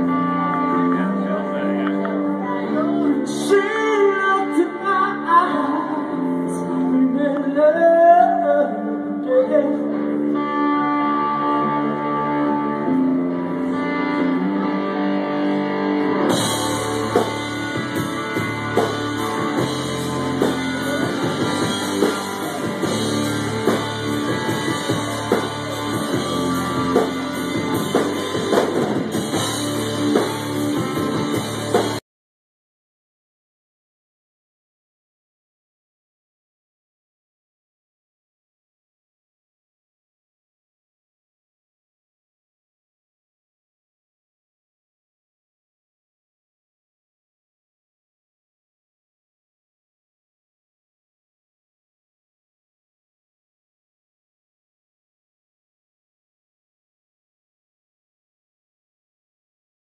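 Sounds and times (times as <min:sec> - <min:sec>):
electric guitar bending notes: 0:00.0 - 0:07.6, 0:08.3 - 0:32.0
bass guitar: 0:00.0 - 0:32.0
drums and cymbals: 0:16.3 - 0:32.0.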